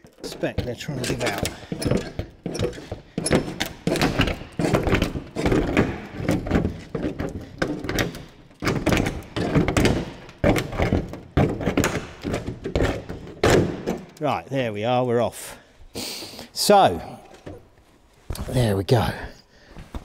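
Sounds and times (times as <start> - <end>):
sheet metal flexing and thunking: 0.0 - 14.2.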